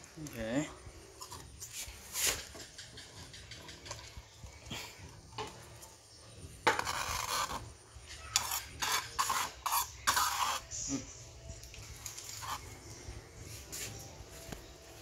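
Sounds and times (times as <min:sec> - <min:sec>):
rice scraped into metal pan: 0:01.6 - 0:02.6, 0:06.6 - 0:07.7, 0:08.3 - 0:10.9.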